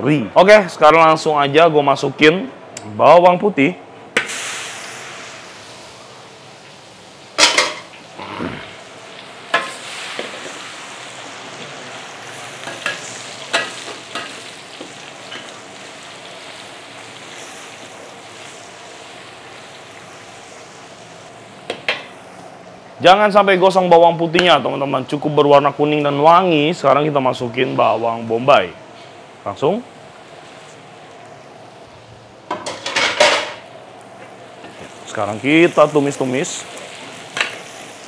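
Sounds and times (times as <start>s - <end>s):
garlic sizzling in hot oil: 4.2s - 22.4s, 28.3s - 38.0s.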